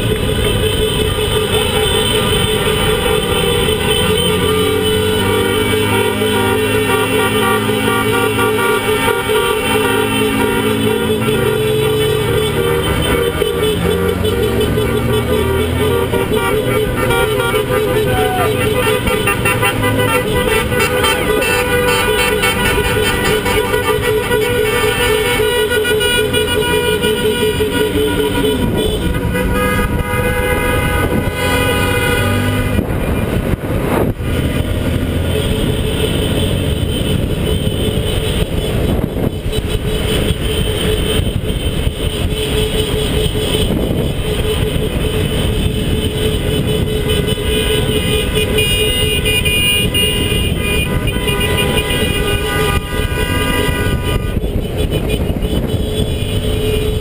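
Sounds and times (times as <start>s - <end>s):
car horns honking: 0.0s - 57.0s
traffic rumble: 0.0s - 57.0s
wind rumble on microphone: 28.5s - 48.5s, 49.5s - 57.0s.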